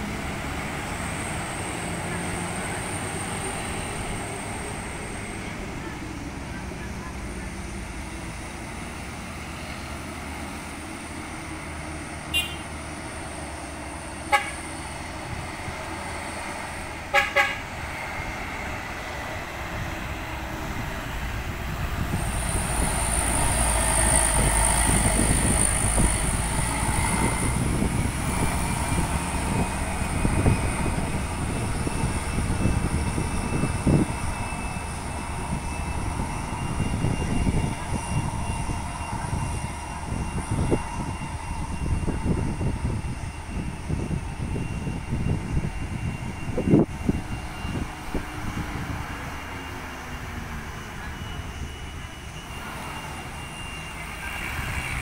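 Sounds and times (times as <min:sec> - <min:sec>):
diesel truck engine passing: 0:00.0 - 0:55.0
vehicle horn toots: 0:12.3 - 0:12.7, 0:14.3 - 0:14.6, 0:17.1 - 0:17.7.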